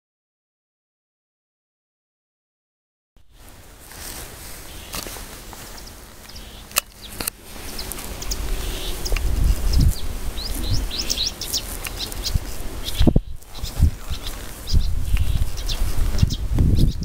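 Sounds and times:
songbird singing: 0:03.2 - 0:17.0
sharp clicks: 0:06.2 - 0:08.4.

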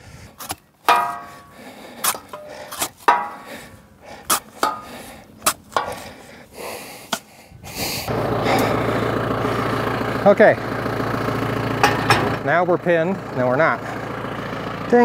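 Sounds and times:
shovel scraping into hard ground: 0:00.4 - 0:03.6.

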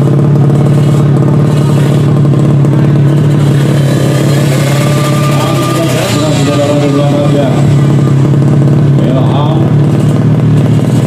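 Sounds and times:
motorcycle engine running loudly: 0:00.0 - 0:11.0
second rising engine note: 0:02.7 - 0:09.7.

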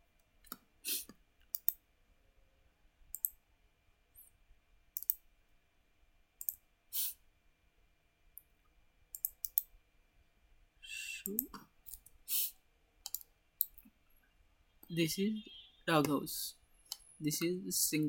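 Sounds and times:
computer mouse clicking: 0:00.4 - 0:01.8, 0:03.1 - 0:03.4, 0:05.0 - 0:05.2, 0:06.4 - 0:06.6, 0:09.1 - 0:09.7, 0:13.0 - 0:13.8.

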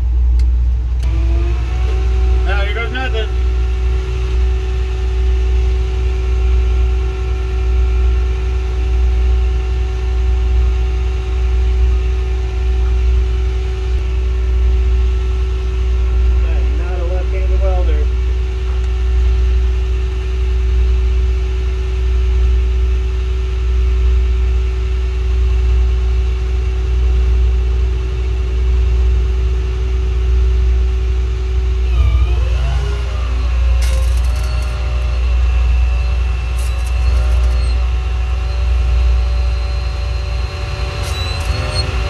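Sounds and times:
engine running low rumble: 0:00.0 - 0:42.0
stick welding crackle: 0:33.7 - 0:37.8.

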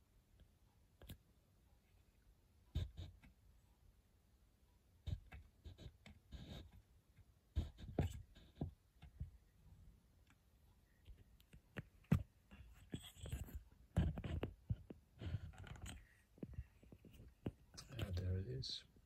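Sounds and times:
small clicks taps and scrapes: 0:00.4 - 0:01.2, 0:05.1 - 0:09.4, 0:10.2 - 0:18.4.

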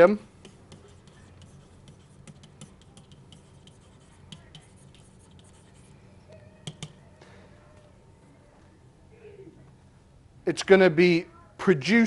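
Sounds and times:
faint steady hum: 0:00.0 - 0:12.0
stylus tapping on pen tablet: 0:06.6 - 0:07.0.

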